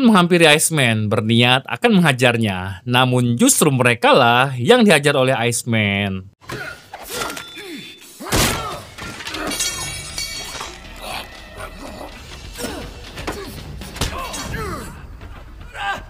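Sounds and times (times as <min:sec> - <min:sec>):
men grunting and shouting: 0:06.4 - 0:16.0
low background music: 0:08.5 - 0:16.0.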